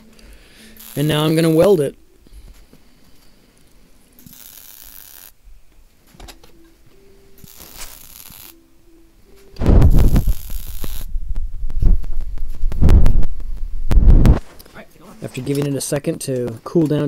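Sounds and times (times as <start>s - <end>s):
welder arc crackling: 0.0s - 2.0s, 3.6s - 5.4s, 7.4s - 8.6s, 9.6s - 14.4s.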